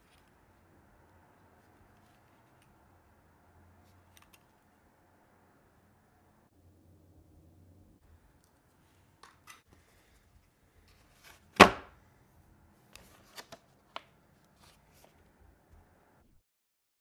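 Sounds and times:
cardboard box thump on table: 11.5s - 11.9s.

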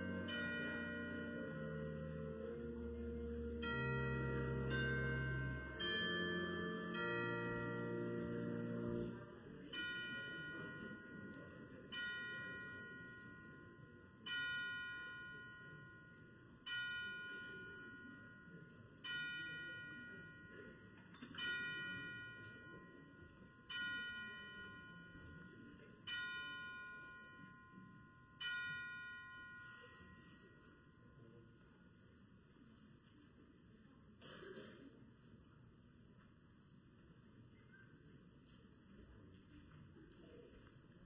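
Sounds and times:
bell tolling slowly: 0.0s - 31.5s.

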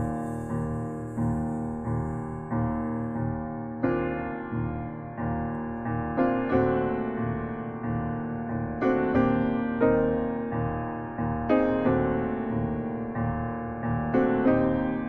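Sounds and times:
slow piano chords: 0.0s - 15.0s.

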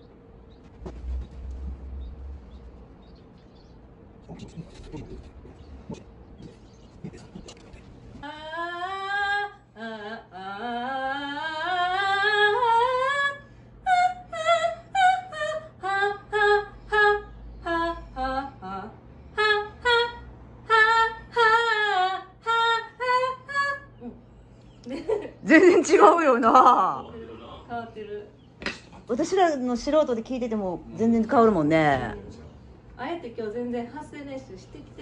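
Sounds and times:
woman singing vocal exercises: 8.2s - 24.3s.

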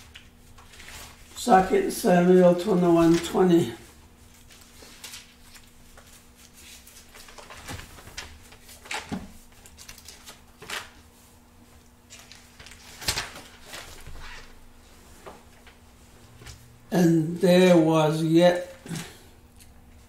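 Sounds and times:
book pages rustling: 0.0s - 1.4s, 2.6s - 16.6s
faint steady hum: 0.0s - 20.0s.

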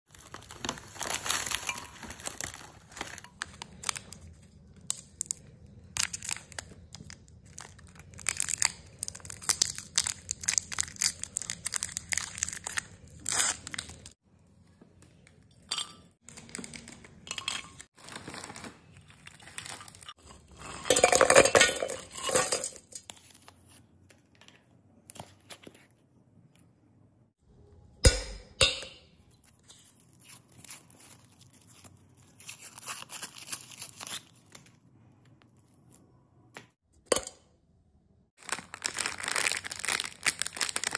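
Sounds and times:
plastic wrappers crinkling: 0.1s - 14.2s, 16.3s - 21.2s, 29.5s - 34.8s, 38.4s - 40.9s.

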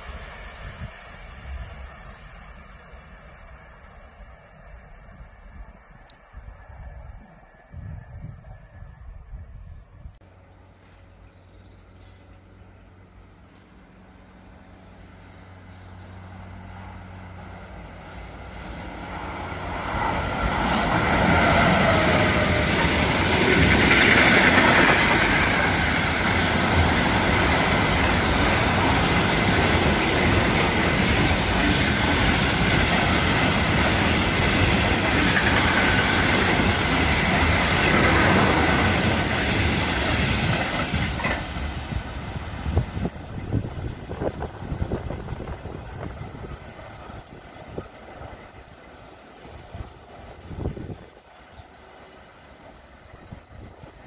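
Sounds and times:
freight train passing: 0.0s - 54.0s
train wheels running over rails: 15.5s - 54.0s.

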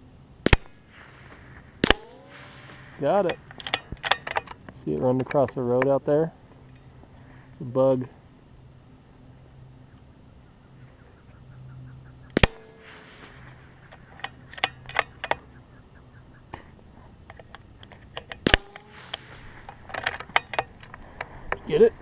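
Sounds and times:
rifle shots: 0.4s - 4.6s, 12.3s - 15.6s, 18.2s - 20.8s
metallic clicks of rifle bolt: 3.3s - 5.9s, 12.4s - 15.4s, 17.3s - 21.3s.

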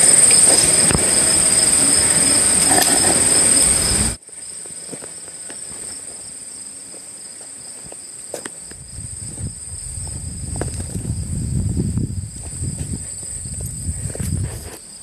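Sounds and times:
loud rushing noise: 0.0s - 4.2s
high-pitched insect buzzing: 0.0s - 15.0s.

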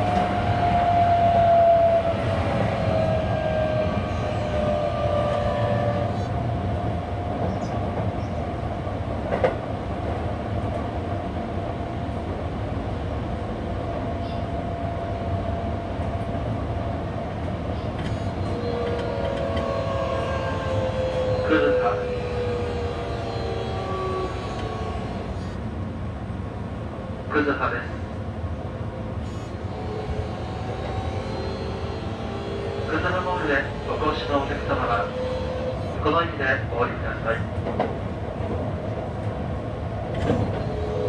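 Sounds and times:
train wheels rumbling on rail: 0.0s - 41.0s
traction motor whine: 18.3s - 25.6s, 29.2s - 36.1s.

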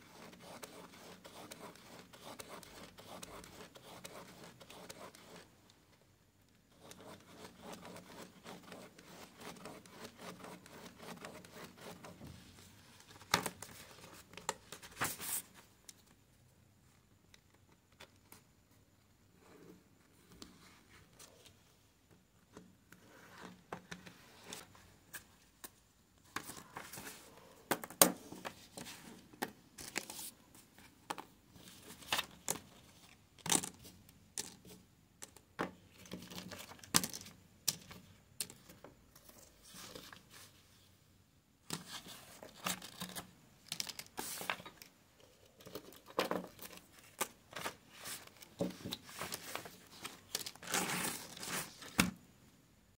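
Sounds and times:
paper rustling: 12.9s - 15.6s, 31.6s - 32.6s, 41.7s - 44.9s, 46.1s - 52.1s.

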